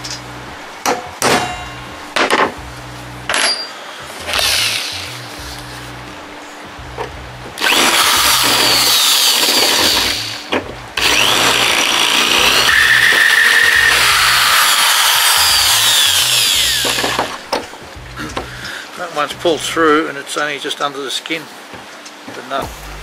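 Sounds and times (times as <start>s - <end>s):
electric drill boring into brass: 4.3s - 5.2s, 7.6s - 17.5s.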